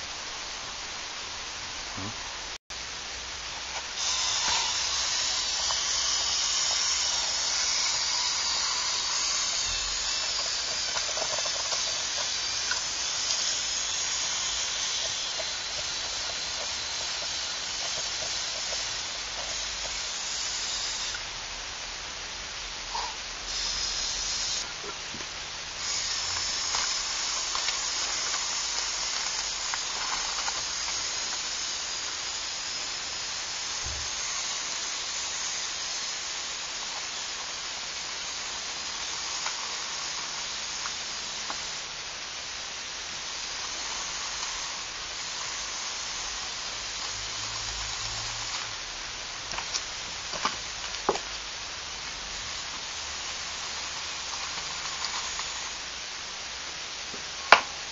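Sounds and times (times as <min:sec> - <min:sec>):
toy motors whirring: 0:03.8 - 0:21.3, 0:22.9 - 0:24.8, 0:25.8 - 0:41.9, 0:43.2 - 0:48.9, 0:52.4 - 0:56.0.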